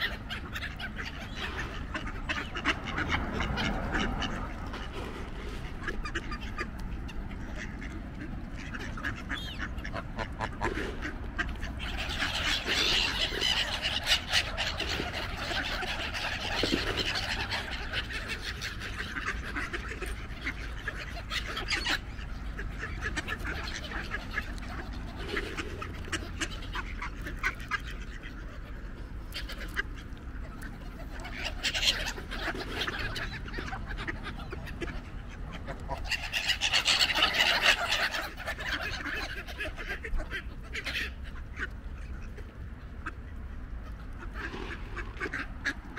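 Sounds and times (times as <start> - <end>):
ducks quacking: 0.0 - 45.9
geese honking: 0.0 - 45.9
steady low rumble: 41.9 - 45.9.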